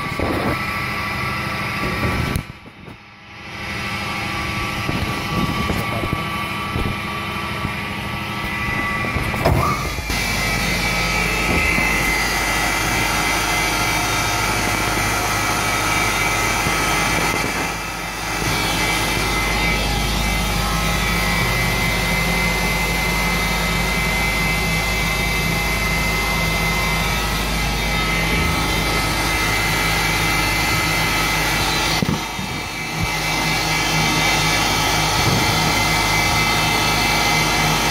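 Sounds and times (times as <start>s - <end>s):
angle grinder whining: 0.0s - 37.9s.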